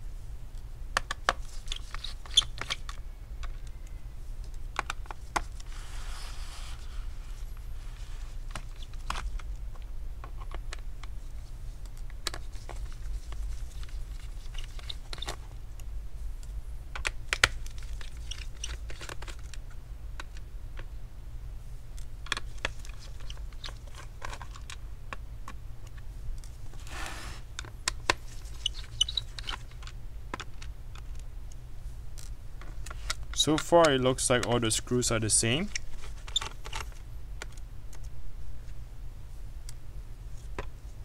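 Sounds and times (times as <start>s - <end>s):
scraping rustle: 26.6s - 27.5s.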